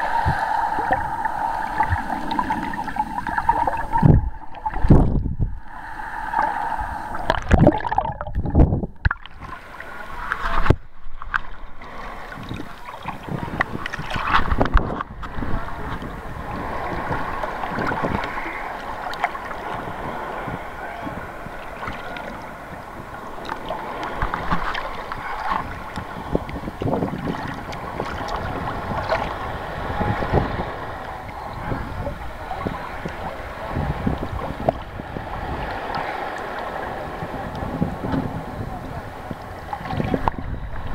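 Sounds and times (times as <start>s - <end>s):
sea water sloshing and splashing: 0.0s - 40.9s
small waves slapping camera: 0.0s - 40.9s
knocks and gurgles: 1.8s - 5.4s, 7.2s - 9.5s.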